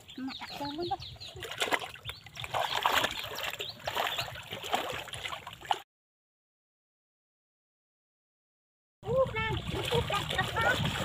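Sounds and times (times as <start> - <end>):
floodwater sloshing and splashing: 0.0 - 5.9, 9.0 - 11.0.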